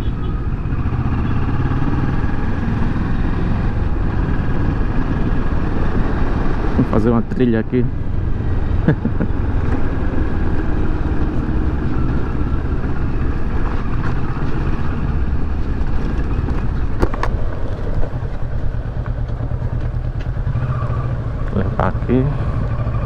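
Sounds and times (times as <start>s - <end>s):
motorcycle engine at low speed: 0.0s - 23.0s.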